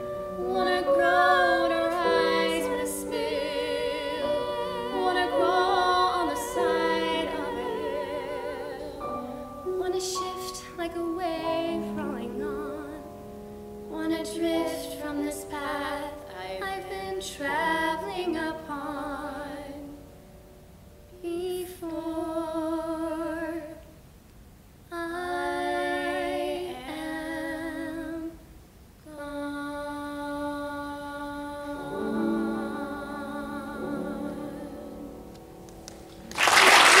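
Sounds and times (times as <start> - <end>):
women singing in harmony: 0.0 - 13.2, 13.9 - 20.1, 21.2 - 23.9, 24.9 - 28.4, 29.1 - 35.4
applause: 35.8 - 37.0.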